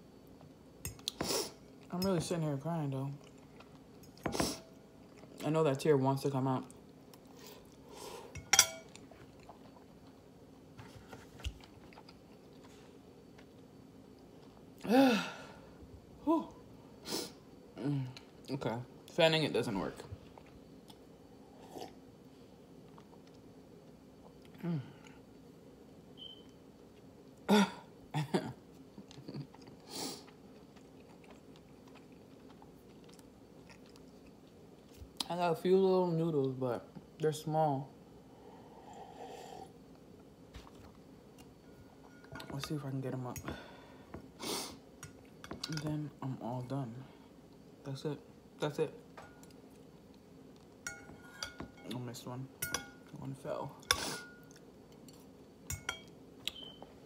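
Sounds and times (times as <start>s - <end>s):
quiet chewing: 11.1s - 14.8s, 28.8s - 35.3s
noisy breath: 38.2s - 39.7s.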